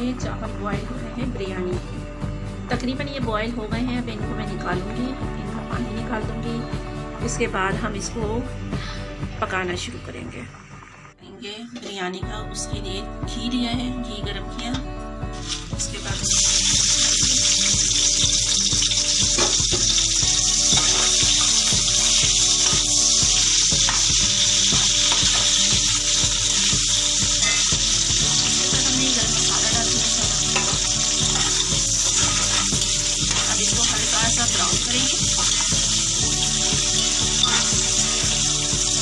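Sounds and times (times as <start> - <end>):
onions sizzling in hot fat: 15.4 - 39.0.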